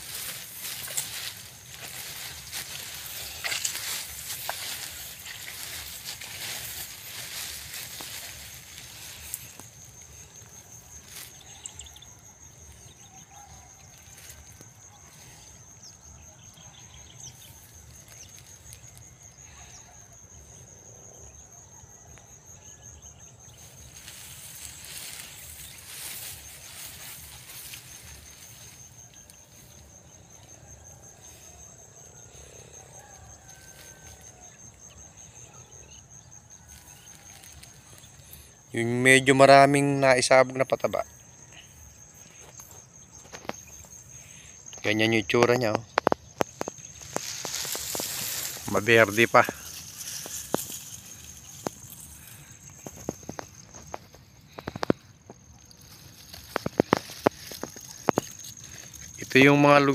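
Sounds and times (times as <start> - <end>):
soft rustling: 0.0 - 9.8, 23.6 - 29.8, 46.4 - 54.2
insect trilling: 0.0 - 59.9.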